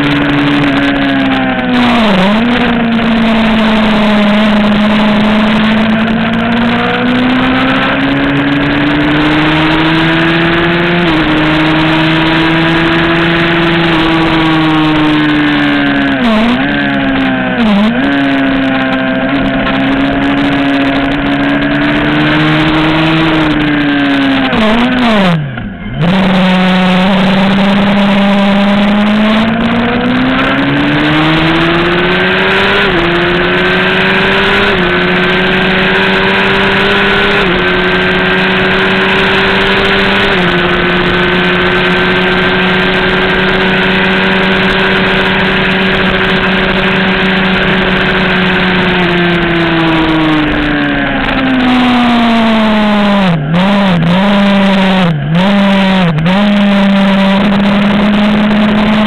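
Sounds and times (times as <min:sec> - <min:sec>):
racing motorcycle engine revving: 0:00.0 - 0:59.0
wind rush: 0:00.0 - 0:59.0.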